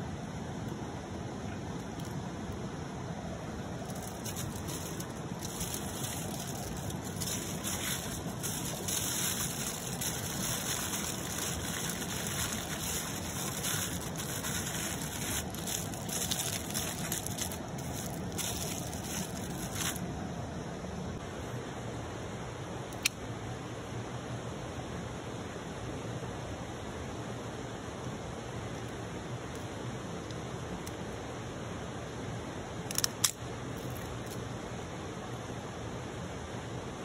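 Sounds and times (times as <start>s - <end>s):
flowing river: 3.3s - 20.1s
aluminium foil crinkling: 3.8s - 20.0s.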